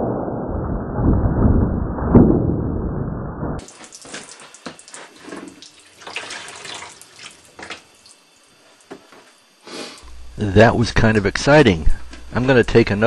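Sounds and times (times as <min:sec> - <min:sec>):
water splashing into a plastic tub: 0:03.6 - 0:08.2.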